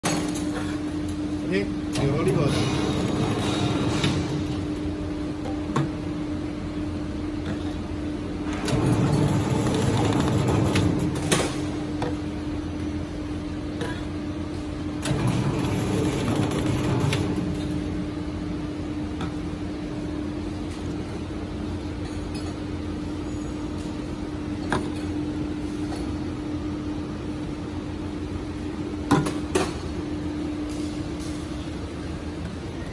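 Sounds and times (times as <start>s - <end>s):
machine motor hum: 0.9s - 7.3s, 8.0s - 13.7s, 14.4s - 20.5s.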